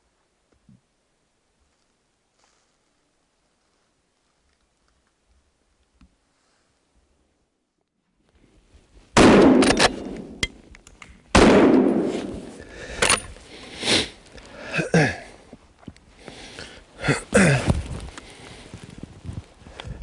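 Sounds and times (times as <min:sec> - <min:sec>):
rifle shots with echo: 0:09.2 - 0:10.5, 0:11.3 - 0:13.2
quiet clicks and rustles: 0:15.4 - 0:16.9, 0:17.6 - 0:20.0.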